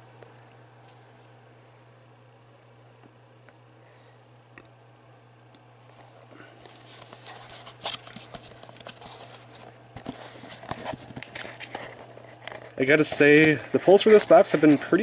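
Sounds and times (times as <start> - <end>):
cardboard rustling and scraping: 6.7 - 15.0.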